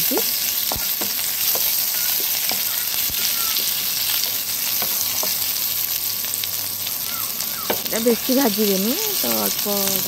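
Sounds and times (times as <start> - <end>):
onion sizzling in oil: 0.0 - 10.0.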